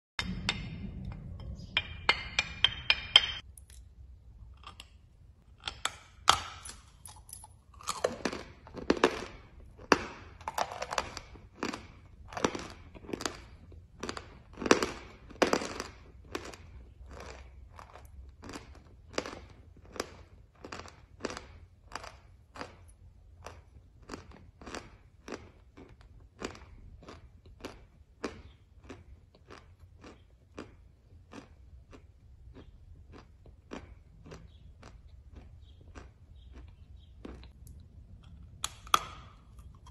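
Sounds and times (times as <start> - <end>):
chalk crunching while chewed: 7.1 - 39.9.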